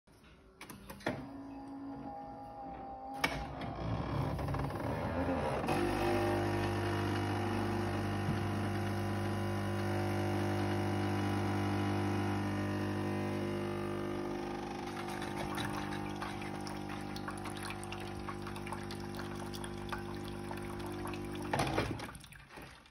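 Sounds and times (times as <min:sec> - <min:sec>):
vibration pump humming: 0:04.2 - 0:21.9
liquid trickling into metal jug: 0:14.9 - 0:22.9.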